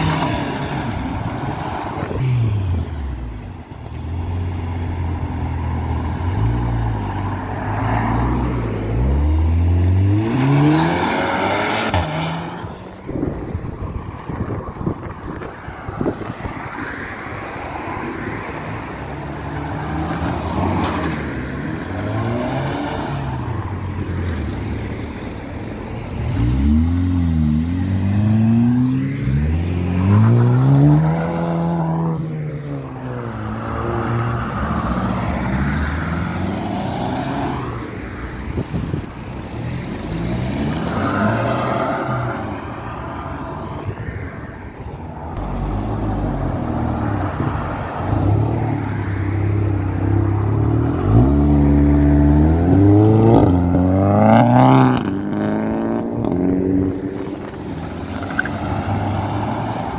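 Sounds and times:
cars accelerating past: 4.3 - 13.3, 26.1 - 44.3, 45.3 - 59.9.

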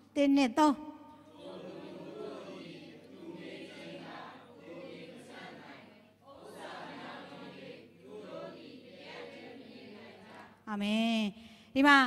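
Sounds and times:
voices reciting in unison: 1.2 - 10.6.

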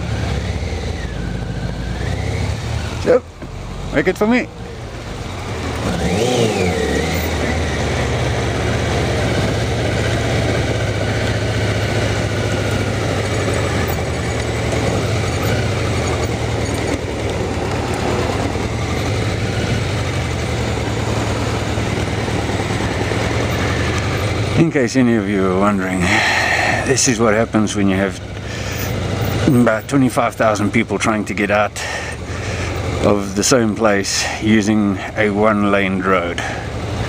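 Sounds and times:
motorcycle engine idling: 0.0 - 37.0.

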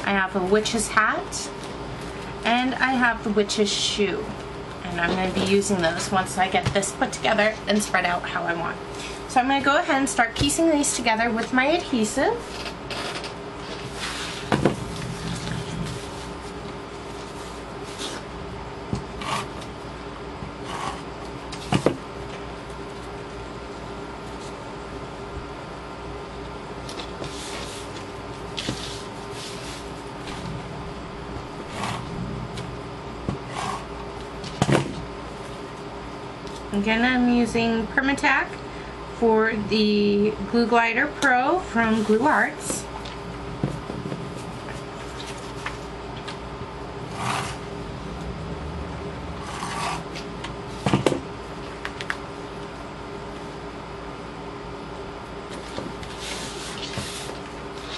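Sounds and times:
steady hum: 0.0 - 57.9
paper being handled and rubbed: 27.0 - 30.0, 56.0 - 57.9.

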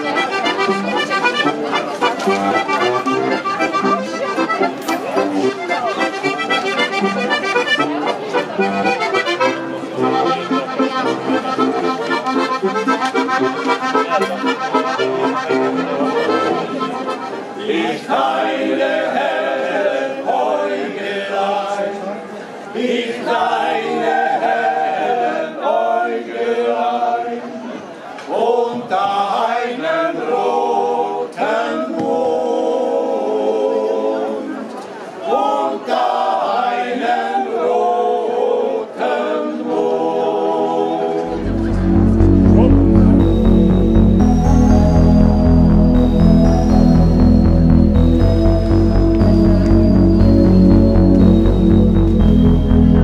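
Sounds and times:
button accordion playing chords: 0.0 - 17.7, 41.2 - 53.0
men's choir singing: 17.6 - 22.0, 22.8 - 27.3, 35.3 - 41.4.

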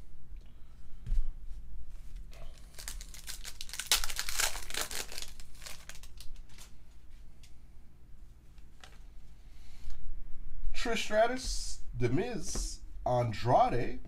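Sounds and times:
foil wrapper crinkling and tearing: 2.4 - 6.8
cards rustling: 2.6 - 7.5.

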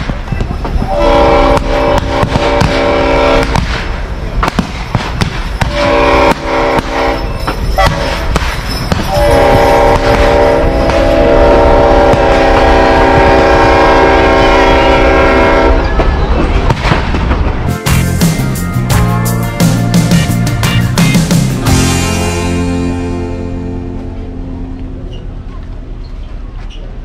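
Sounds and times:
moving train rumble: 0.0 - 27.0
train horn blasts: 0.8 - 3.6, 5.6 - 8.4, 9.0 - 16.1, 21.6 - 25.4
sharp cracks: 16.6 - 18.4.

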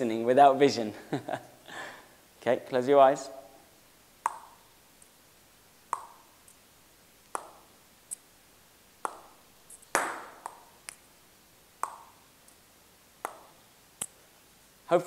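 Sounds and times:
small ball taps: 4.2 - 4.6, 5.9 - 6.6, 7.3 - 8.2, 9.0 - 11.0, 11.8 - 12.2, 13.2 - 14.1
table tennis ball hits on bat: 4.2 - 4.6, 5.9 - 6.2, 7.4 - 7.6, 9.0 - 10.7, 11.8 - 12.2, 13.2 - 13.6.

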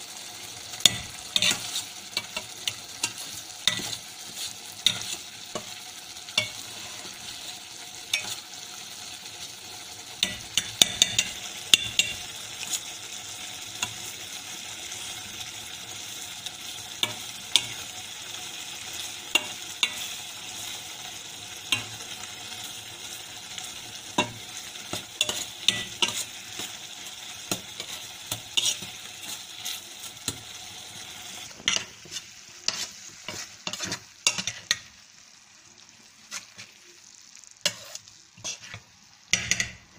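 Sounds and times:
steady sizzle: 0.0 - 39.9
spoon scraping pot: 0.9 - 5.8, 24.2 - 26.8, 27.5 - 30.4, 31.7 - 34.8, 37.6 - 39.8
spoon clinking against pot: 10.2 - 12.2.

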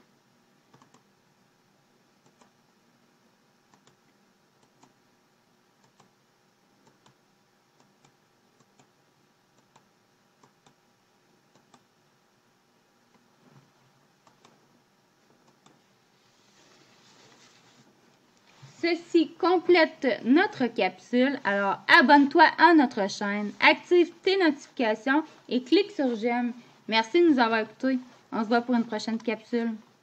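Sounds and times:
low steady hum: 0.0 - 30.0
computer mouse clicks: 0.7 - 1.1, 2.2 - 2.6, 3.7 - 5.0, 5.8 - 6.2, 6.8 - 7.2, 7.8 - 8.9, 9.6 - 10.8, 11.5 - 11.9, 14.2 - 14.6, 15.4 - 15.8.

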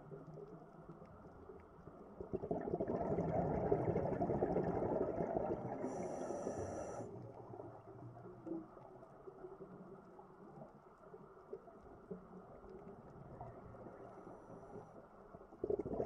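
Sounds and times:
regulator exhale bubbling: 2.3 - 7.1, 15.6 - 16.0.

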